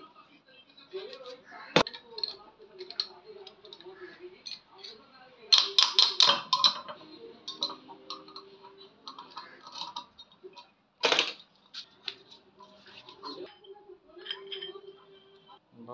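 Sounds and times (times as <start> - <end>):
metal clicks and taps: 5.5 - 8.5.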